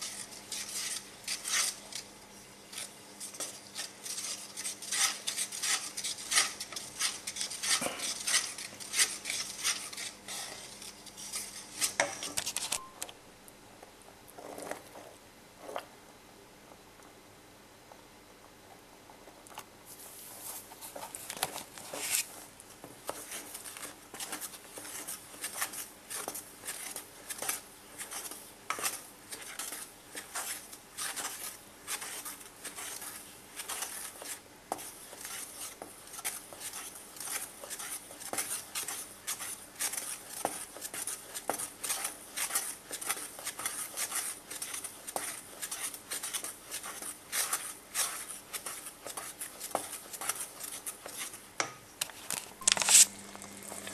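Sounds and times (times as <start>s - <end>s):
wooden stick scraping metal bowl: 2.7s - 13.0s, 23.1s - 51.4s, 52.6s - 53.9s.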